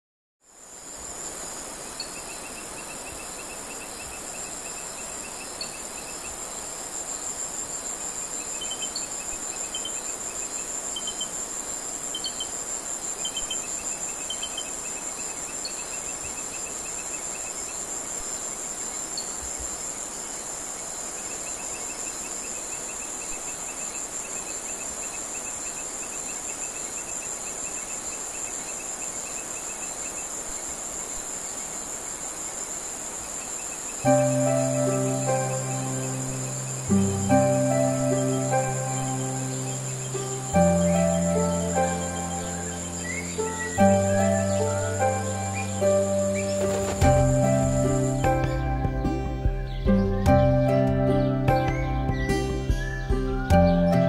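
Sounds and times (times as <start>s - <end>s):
short insect chirps: 0.5s - 48.6s
pulsing insect trill: 0.5s - 54.0s
insects shrilling: 0.8s - 50.4s.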